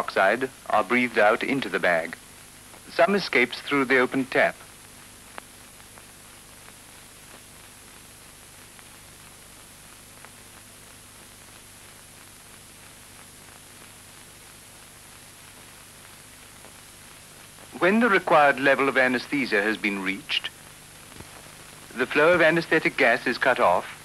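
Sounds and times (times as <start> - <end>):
faint low hum: 0.0 - 24.0
film soundtrack hiss: 0.0 - 24.0
faint clicks: 5.3 - 7.4.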